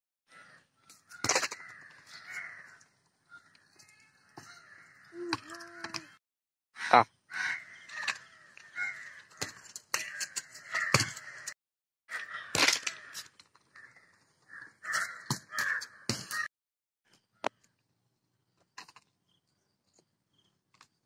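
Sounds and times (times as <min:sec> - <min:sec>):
crows cawing: 0:00.3 - 0:06.1, 0:06.8 - 0:16.5.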